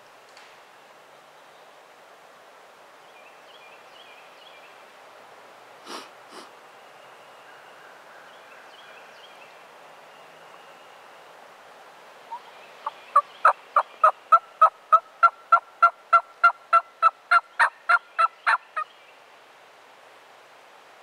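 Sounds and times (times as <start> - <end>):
turkey yelping: 14.0 - 18.6.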